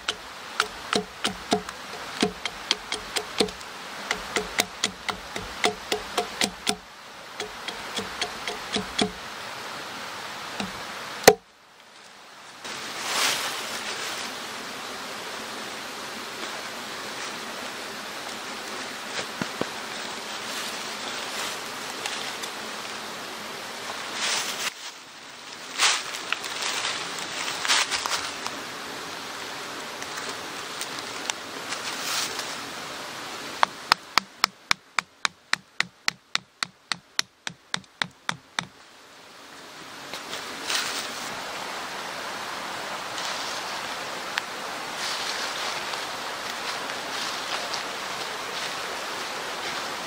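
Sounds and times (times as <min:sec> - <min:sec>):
hatchet knocking wooden stake: 0:00.0 - 0:06.8, 0:07.4 - 0:09.2, 0:10.6 - 0:11.4, 0:33.6 - 0:38.7
rustling in dry leaves: 0:00.0 - 0:34.5, 0:38.6 - 0:50.0.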